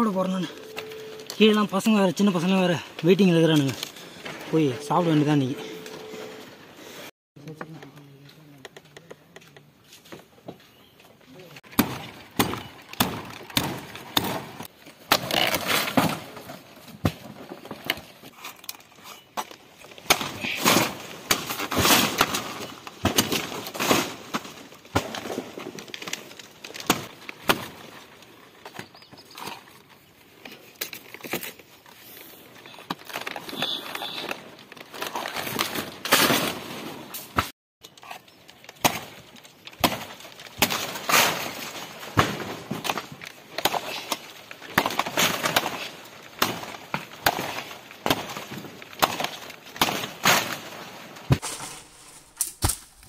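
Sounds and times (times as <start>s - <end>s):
crunching: 11.2s - 53.0s.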